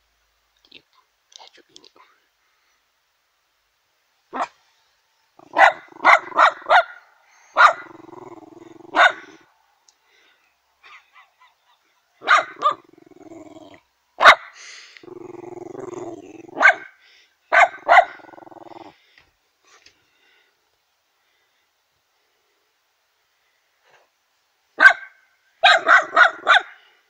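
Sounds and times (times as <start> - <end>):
dog barking: 4.3 - 4.6, 5.4 - 8.1, 8.9 - 9.4, 10.8 - 12.9, 14.2 - 14.6, 16.5 - 18.3, 24.8 - 26.9
dog growling: 5.4 - 6.7, 7.6 - 9.4, 12.5 - 13.9, 15.0 - 16.8, 17.8 - 19.0.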